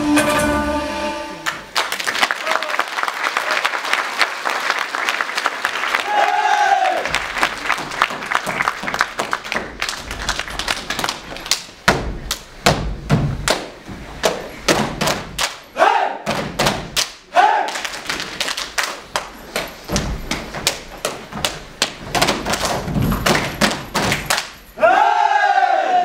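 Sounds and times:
stomps and claps on wooden stage: 1.4 - 24.6
dancers shouting: 6.0 - 7.2, 15.8 - 16.2, 17.3 - 17.7, 24.8 - 26.0.

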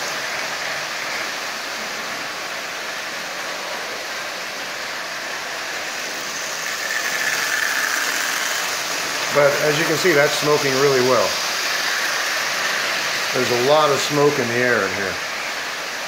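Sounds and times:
toy train motor whirring: 3.6 - 15.8.

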